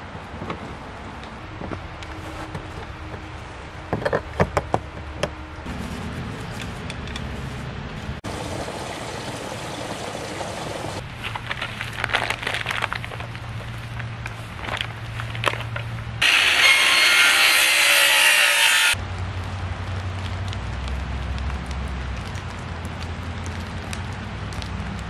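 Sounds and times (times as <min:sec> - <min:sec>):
hose fitting clicking and scraping: 0:06.6 - 0:07.4
water rushing through hose: 0:08.2 - 0:12.8.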